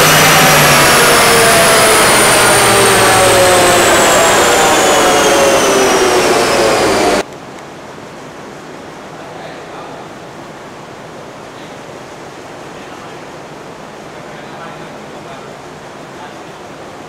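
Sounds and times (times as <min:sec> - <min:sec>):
engine and roller whine falling: 0:00.0 - 0:09.2.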